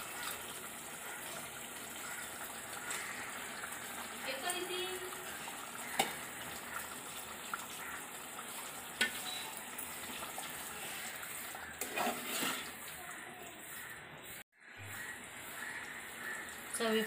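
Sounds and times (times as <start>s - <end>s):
meat sizzling in gravy: 0.0s - 17.0s
metal spoon stirring: 10.9s - 13.2s.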